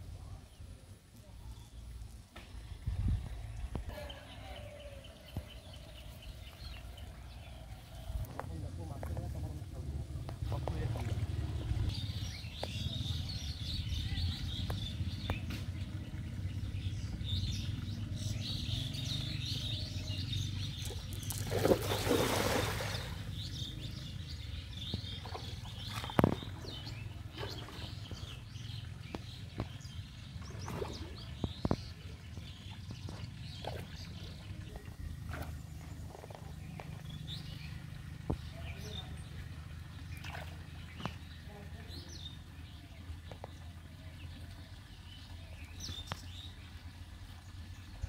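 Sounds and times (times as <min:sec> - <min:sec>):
birds chirping: 0:00.0 - 0:48.0
low rumble: 0:01.7 - 0:21.6
small water splashes: 0:20.6 - 0:23.7, 0:24.8 - 0:48.0
net splashing into water: 0:21.2 - 0:23.2.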